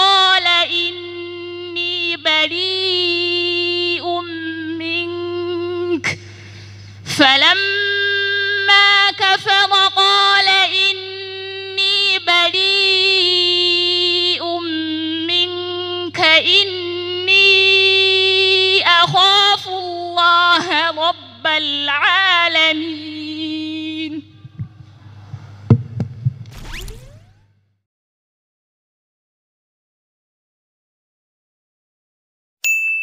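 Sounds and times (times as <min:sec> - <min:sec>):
woman chanting through loudspeakers: 0:00.0 - 0:06.2, 0:07.1 - 0:25.2
low electrical hum: 0:00.0 - 0:27.7.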